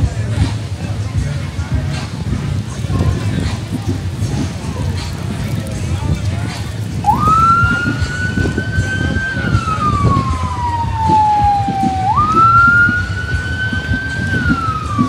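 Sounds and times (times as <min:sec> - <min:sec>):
siren wailing: 0:07.0 - 0:15.0.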